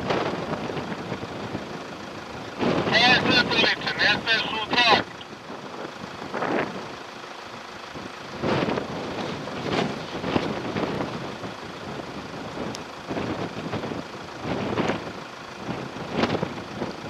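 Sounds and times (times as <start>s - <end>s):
off-road engines under load: 0.0s - 17.0s.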